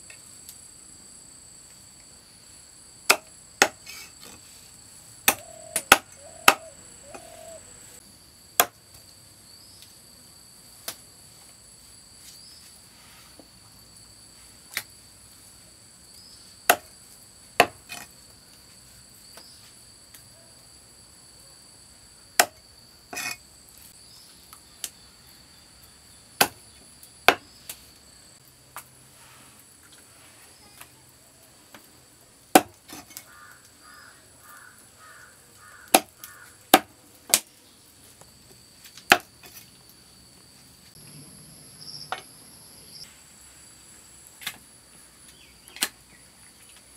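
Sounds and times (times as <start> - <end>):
cleaver chopping on wooden block: 3.1 - 3.8, 5.3 - 7.3, 8.6 - 8.8, 16.7 - 16.9, 17.6 - 17.8, 22.4 - 22.6, 32.6 - 32.8, 35.9 - 36.1, 36.7 - 37.4, 39.1 - 39.3
high-pitched insect drone: 5.4 - 8.0.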